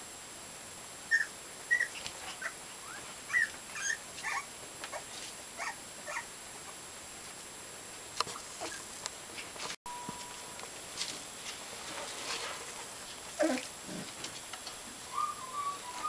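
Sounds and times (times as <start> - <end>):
puppies whimpering: 1.1 - 5.0.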